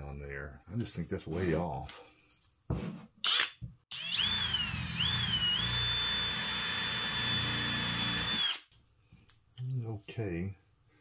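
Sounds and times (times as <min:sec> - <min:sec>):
cordless drill motor whine: 0:03.3 - 0:08.6.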